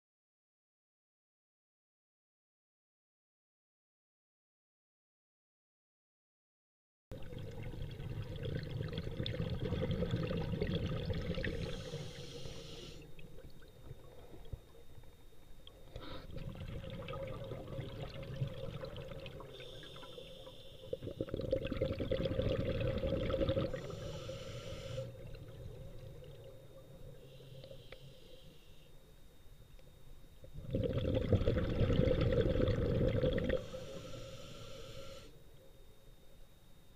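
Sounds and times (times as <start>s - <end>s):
diver breathing underwater: 9.7s - 13.2s, 19.4s - 25.3s, 30.6s - 35.4s
faint camera whine: 11.5s - 16.3s, 23.7s - 30.6s.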